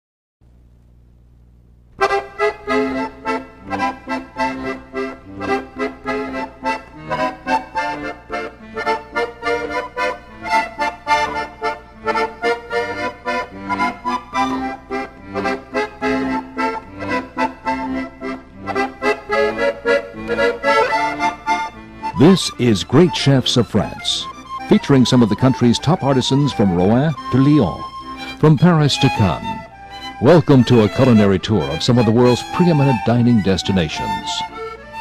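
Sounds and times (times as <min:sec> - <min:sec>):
instrumental music with beat: 0:01.9 - 0:35.0.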